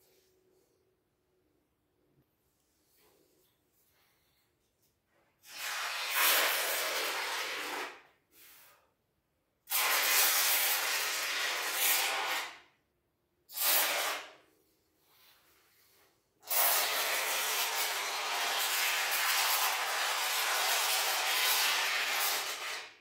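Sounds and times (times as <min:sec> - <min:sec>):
foam hissing from can: 0:05.4 - 0:08.8, 0:09.7 - 0:12.7, 0:13.5 - 0:14.4, 0:16.4 - 0:23.0.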